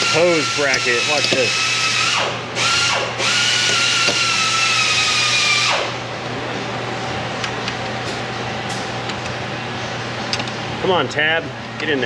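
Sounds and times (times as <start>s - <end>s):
power tool motor whirring: 0.0s - 5.9s
low shop hum: 0.0s - 12.0s.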